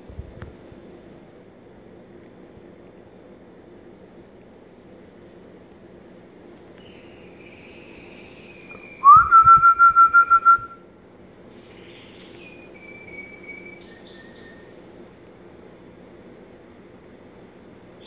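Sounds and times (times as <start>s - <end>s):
faint high bird chirps: 2.3s - 18.0s
bird whistled pulsing call: 6.8s - 10.8s, 12.2s - 15.0s.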